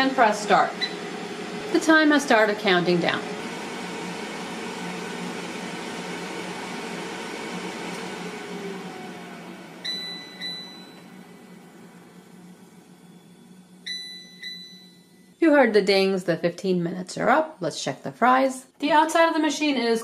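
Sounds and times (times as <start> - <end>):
air fryer fan whine: 0.0 - 16.2
air fryer chime dings: 0.8 - 1.0, 9.8 - 11.1, 13.8 - 15.2.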